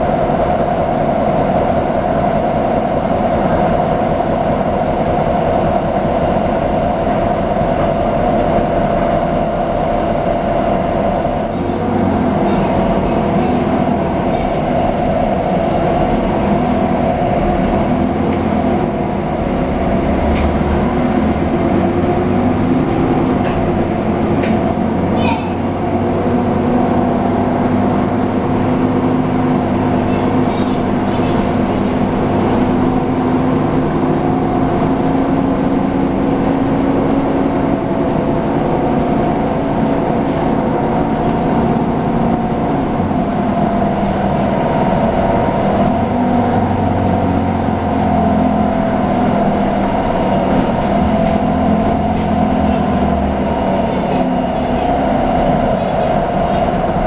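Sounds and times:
bus engine and drivetrain drone: 0.0s - 57.0s.

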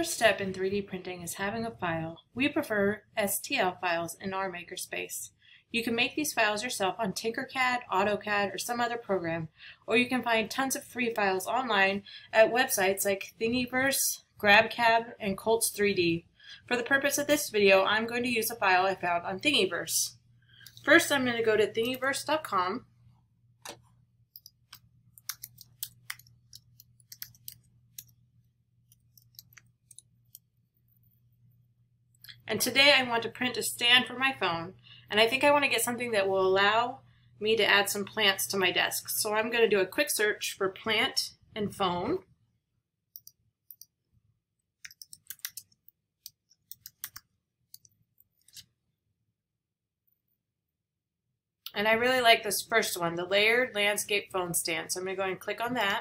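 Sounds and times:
keyboard typing clicks: 44.8s - 47.9s.

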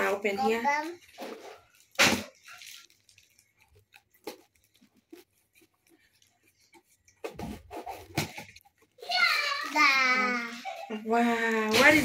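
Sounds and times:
crackling rustle: 0.5s - 7.1s, 8.4s - 10.8s.

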